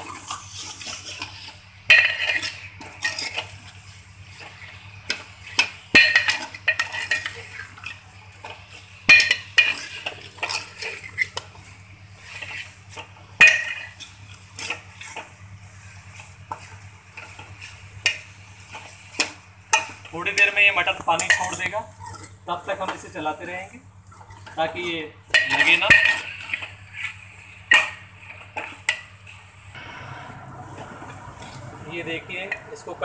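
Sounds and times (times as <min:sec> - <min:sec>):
ladle scraping metal pot: 0:00.0 - 0:03.8, 0:04.4 - 0:11.5, 0:25.3 - 0:33.0.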